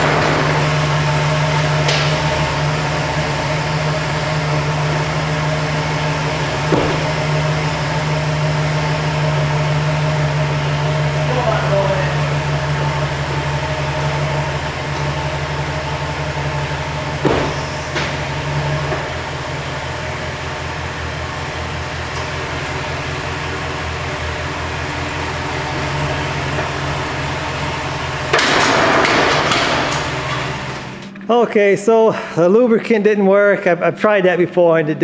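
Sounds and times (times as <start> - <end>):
pickup engine idling: 0.0 - 32.6
sharp knock: 17.2 - 18.1.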